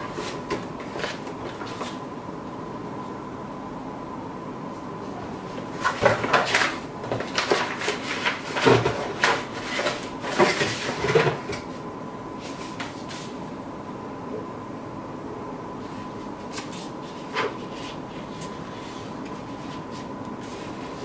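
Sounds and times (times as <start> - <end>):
cardboard box and paper rustling: 5.7 - 11.6.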